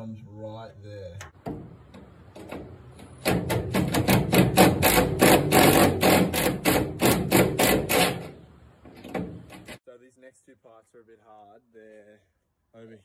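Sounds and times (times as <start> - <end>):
impact driver hammering: 1.4 - 9.8.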